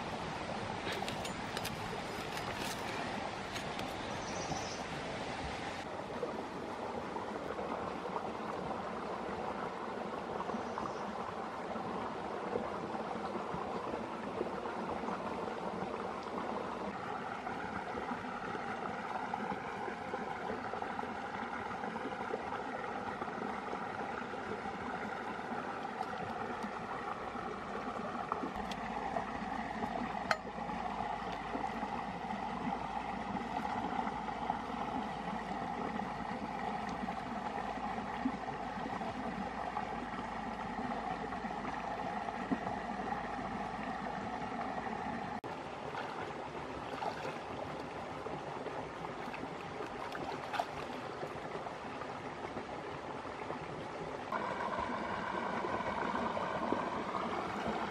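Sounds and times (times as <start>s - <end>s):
stream babbling over rocks: 0.0s - 57.9s.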